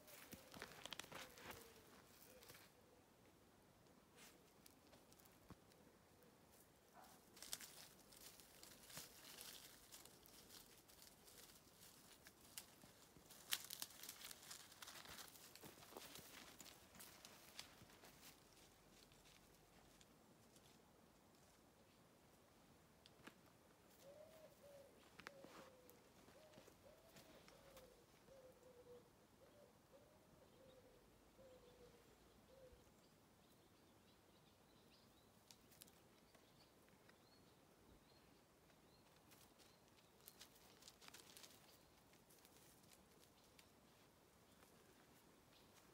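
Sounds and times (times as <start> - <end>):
rustling of dry leaves: 0.0 - 2.8, 6.5 - 20.8, 38.9 - 45.9.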